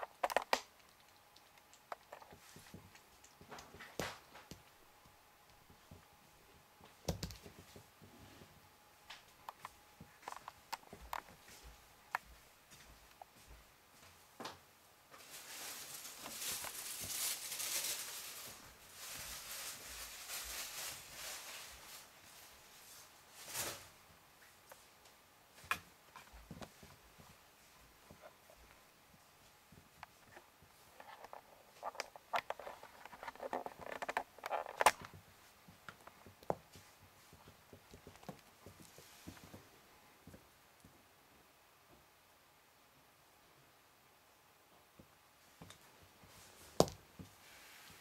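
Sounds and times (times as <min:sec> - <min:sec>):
kitten rustling fabric toy: 0:01.1 - 0:04.4, 0:15.2 - 0:24.0, 0:29.4 - 0:39.7, 0:46.1 - 0:48.0
cord and toy scuffing on carpet: 0:29.7 - 0:39.7, 0:46.2 - 0:48.0.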